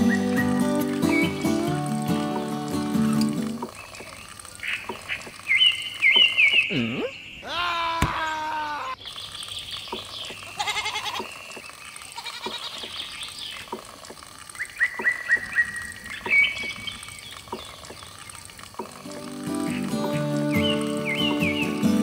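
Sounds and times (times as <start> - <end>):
sheep or goat bleating: 7.4 - 9.0, 10.5 - 11.3, 12.1 - 12.9.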